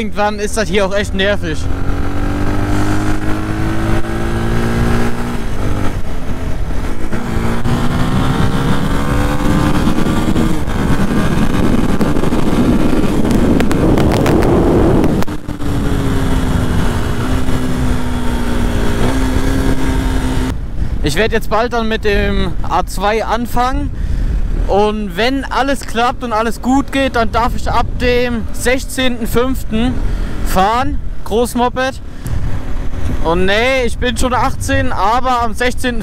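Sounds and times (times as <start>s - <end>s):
wind rushing: 0.0s - 31.3s, 32.0s - 35.6s
motorcycle engine accelerating: 0.8s - 20.8s.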